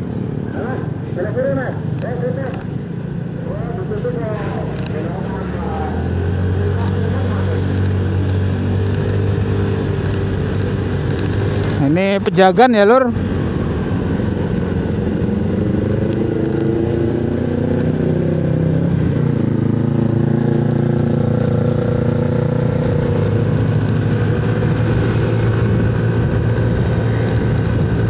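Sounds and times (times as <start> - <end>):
wind noise: 21.0 - 28.0.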